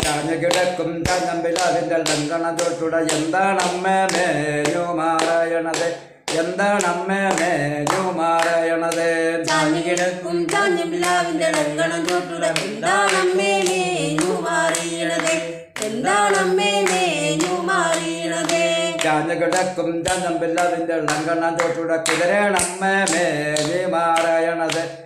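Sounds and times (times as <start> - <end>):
hands clapping a beat: 0.0 - 25.0
man singing: 0.0 - 25.0
woman singing: 9.5 - 19.2.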